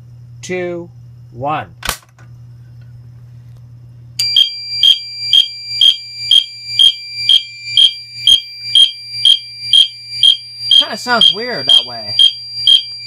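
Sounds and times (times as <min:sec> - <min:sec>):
fire alarm horn pulsing: 0:04.2 - 0:13.0.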